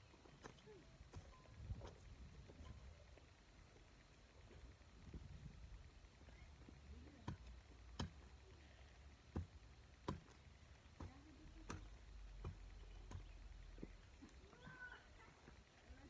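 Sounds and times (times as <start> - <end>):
garden tool striking soil: 7.2 - 8.3, 9.2 - 14.1.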